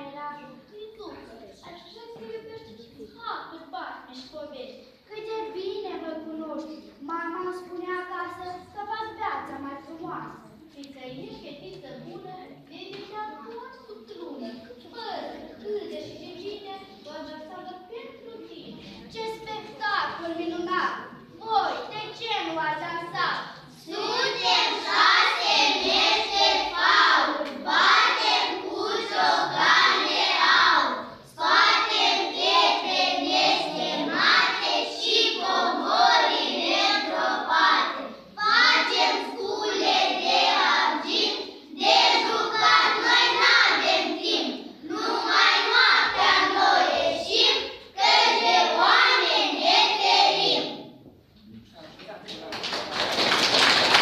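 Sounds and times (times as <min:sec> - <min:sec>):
children singing in unison: 0:23.9 - 0:50.9.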